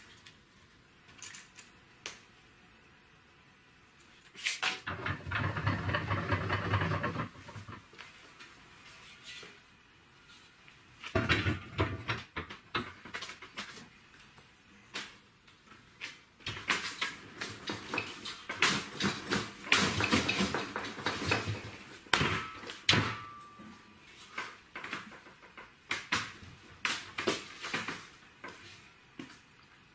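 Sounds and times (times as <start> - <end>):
steel tubing clattering: 17.4 - 23.5.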